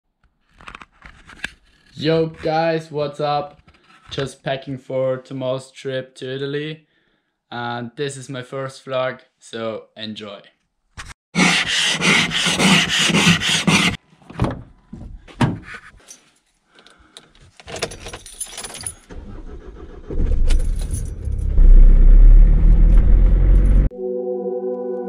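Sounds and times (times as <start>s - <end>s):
keys jangling: 17.6s - 19.1s, 20.5s - 21.5s
car engine starting and running: 19.1s - 23.9s.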